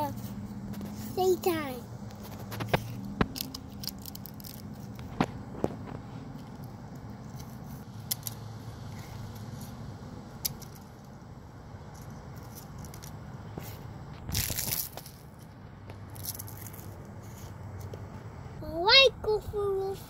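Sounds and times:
steady low hum: 0.0s - 20.0s
dry leaves crunching on asphalt: 13.6s - 17.6s.

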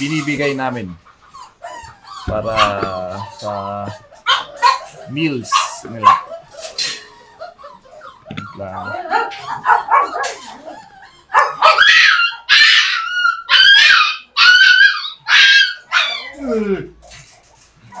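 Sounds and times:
puppy whining and yelping: 0.0s - 18.0s.

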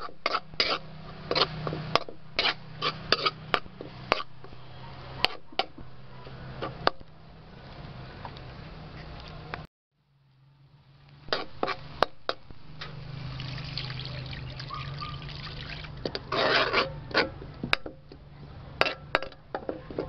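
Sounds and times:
liquid pouring into sizzling wok: 12.7s - 16.1s.

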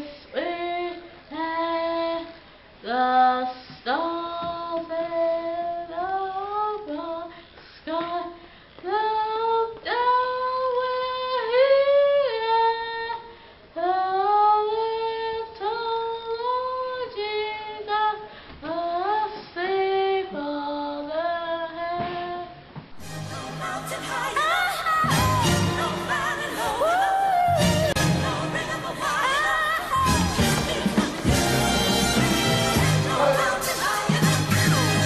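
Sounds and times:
child singing: 32.6s - 35.0s.

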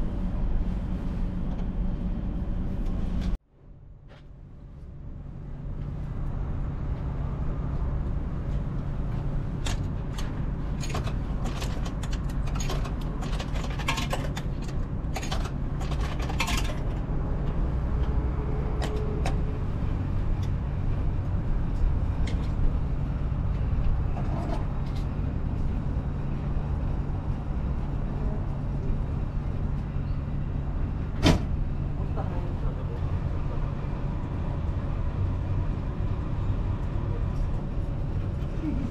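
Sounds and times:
machine clicks and rattles: 9.6s - 17.1s.

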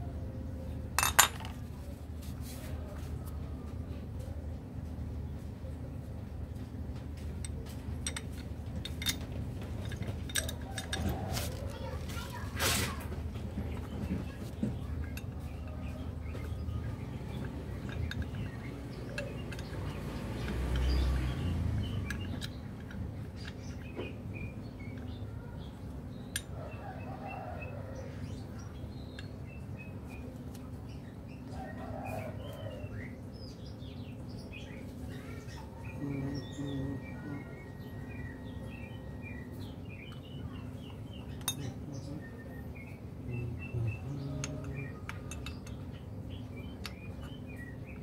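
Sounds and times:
low background hum: 0.0s - 48.0s
small birds chirping: 9.8s - 48.0s.

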